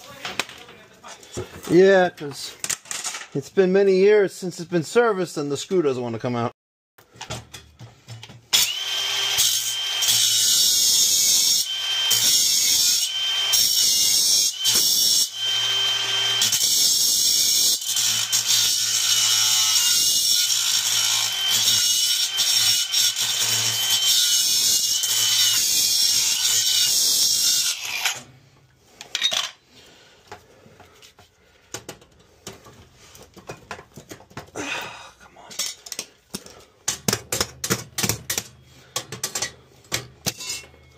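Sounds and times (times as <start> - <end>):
grinder cutting metal: 8.5 - 28.3.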